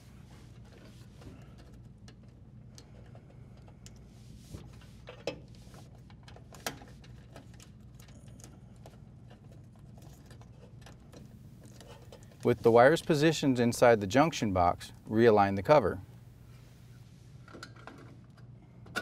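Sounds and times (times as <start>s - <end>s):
low steady hum: 0.0s - 19.0s
electrical wires rustling: 9.3s - 14.9s.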